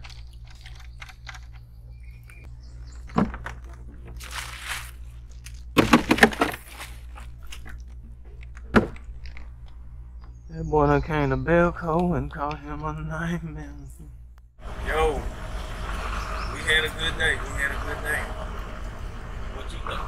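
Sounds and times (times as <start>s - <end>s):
bag of ice crunching: 4.2s - 7.6s.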